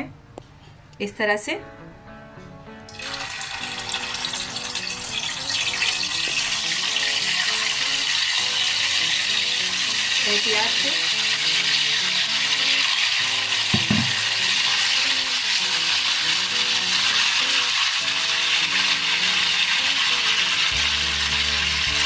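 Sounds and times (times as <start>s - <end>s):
background music: 0.0s - 22.0s
chicken sizzling in hot oil: 2.9s - 22.0s
brief knock: 13.8s - 14.2s.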